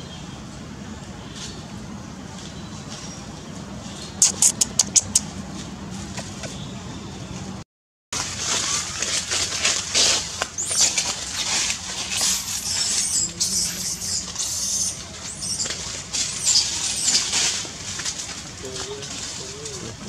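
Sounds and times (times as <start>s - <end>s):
baby monkey squealing: 4.2s - 5.2s, 10.6s - 17.5s
leaves and branches rustling: 8.2s - 20.0s.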